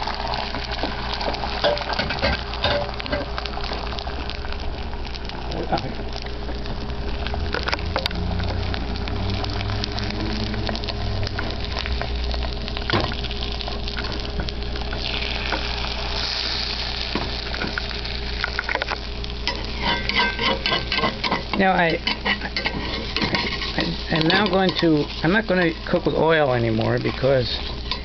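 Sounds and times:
egg sizzling in a frying pan: 0.0 - 28.0
small pops and crackles: 16.7 - 19.5.

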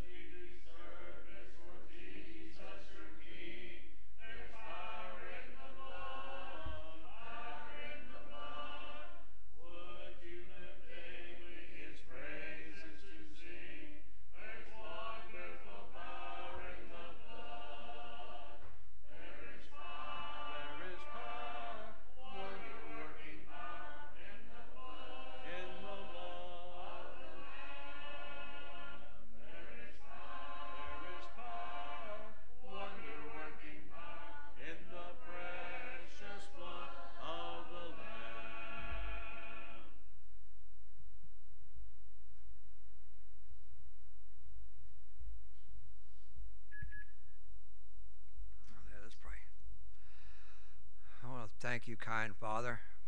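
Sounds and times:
congregation singing a hymn: 0.0 - 40.0.

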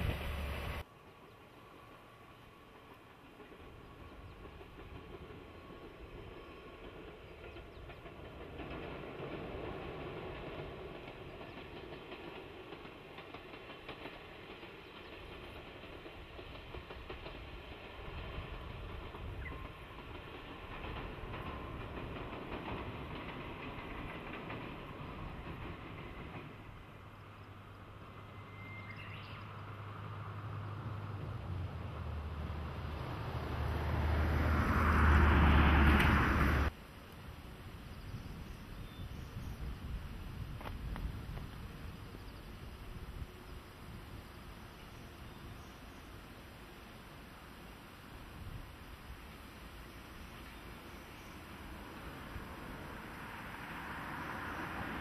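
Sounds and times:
diesel locomotive engine running: 0.0 - 0.9
diesel locomotive engine drone: 0.0 - 55.0
bird chirp: 27.2 - 29.7, 38.0 - 39.7.

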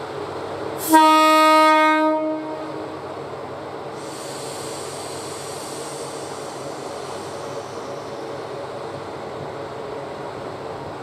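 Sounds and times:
diesel railcar engine running: 0.0 - 11.0
train horn blast: 0.8 - 3.0
hiss: 3.8 - 9.8.

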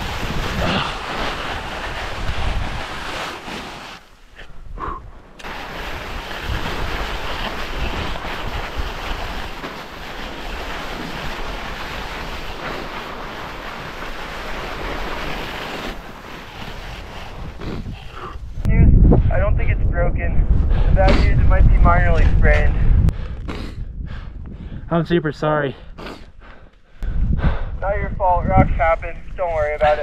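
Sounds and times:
wind buffeting microphone: 0.0 - 3.2, 16.5 - 25.4, 26.3 - 30.0
snow hissing and scraping: 0.0 - 4.4, 5.4 - 18.7.

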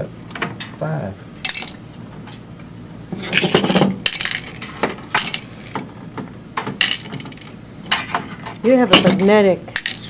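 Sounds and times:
screws dropped into a cup: 1.5 - 1.8, 3.3 - 4.6, 5.2 - 5.5, 6.8 - 7.5, 9.8 - 10.0.

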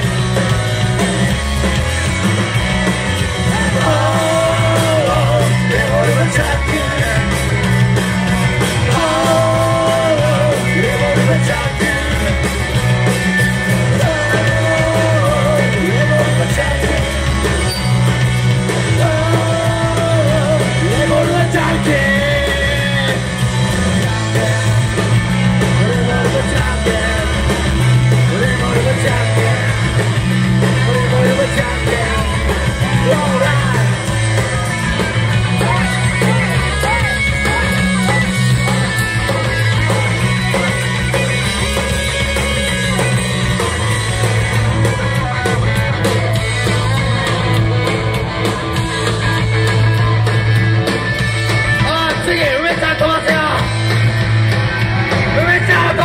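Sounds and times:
bass guitar: 0.0 - 56.0
drum kit: 0.0 - 56.0
electric guitar: 0.0 - 56.0
person singing: 3.4 - 7.6, 8.8 - 12.6, 13.7 - 17.6, 18.8 - 34.7.

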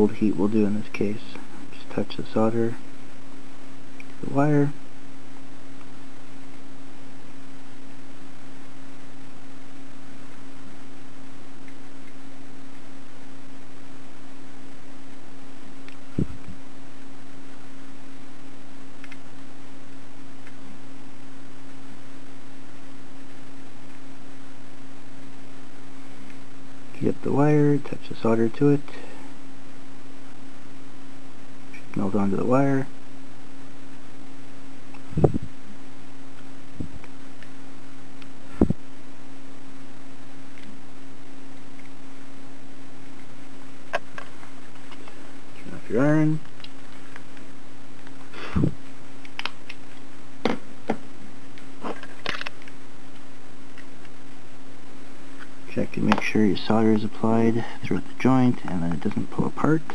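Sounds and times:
low electrical hum: 0.0 - 59.9
even hiss: 39.8 - 59.9.

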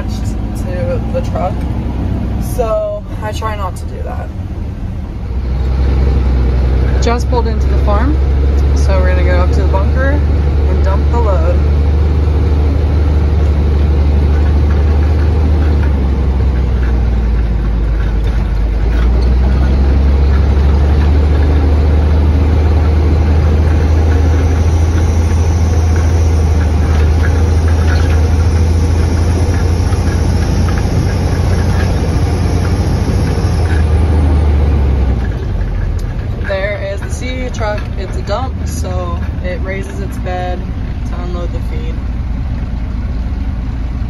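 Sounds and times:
truck diesel engine droning: 0.0 - 44.0
faint high whine: 8.8 - 35.4.

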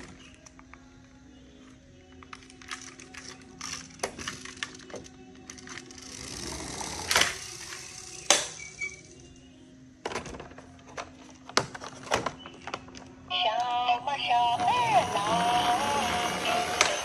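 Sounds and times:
toy truck rolling on tiled floor: 2.0 - 9.2, 14.4 - 17.0
toy vehicles clicking and clattering: 2.1 - 8.8, 14.4 - 17.0.

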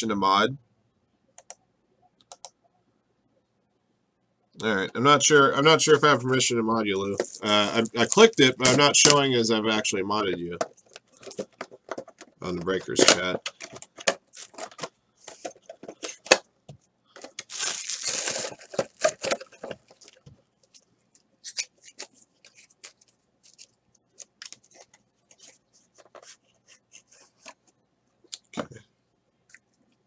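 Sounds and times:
cards and cardboard rustling: 7.0 - 16.4, 17.2 - 27.7
cardboard packaging tearing: 17.4 - 20.2.

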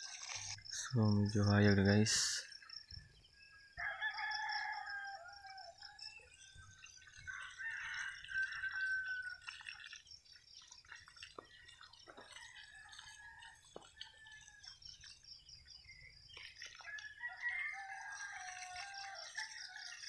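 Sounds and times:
hose water splashing on soil: 0.0 - 2.9, 5.8 - 20.0
rooster crowing: 3.7 - 6.1, 7.3 - 9.4, 16.9 - 20.0.

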